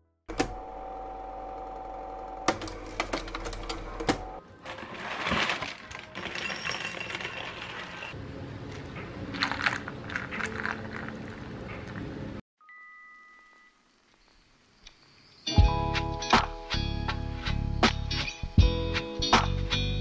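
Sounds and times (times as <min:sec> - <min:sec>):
plastic bag crinkling: 0:04.6 - 0:11.4
cereal clattering into bowl: 0:04.7 - 0:08.2, 0:09.3 - 0:11.3.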